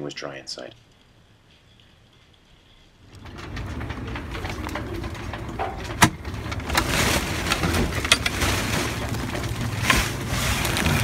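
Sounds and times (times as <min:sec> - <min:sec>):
rustling: 0:00.8 - 0:11.0
wooden hatch clattering and scraping: 0:03.1 - 0:11.0.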